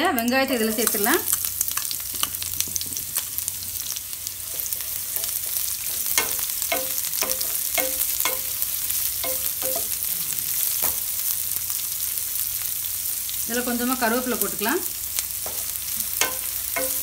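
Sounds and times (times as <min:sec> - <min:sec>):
onions sizzling in oil: 0:00.0 - 0:17.0
spatula knocking and scraping pan: 0:04.5 - 0:10.0, 0:15.4 - 0:17.0.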